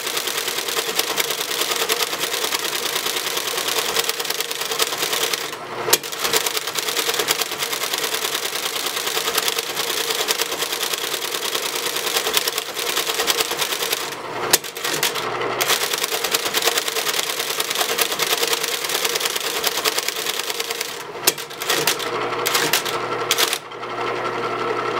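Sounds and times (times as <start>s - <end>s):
typebar strikes: 4.8s - 6.6s, 12.4s - 18.2s, 19.6s - 23.6s.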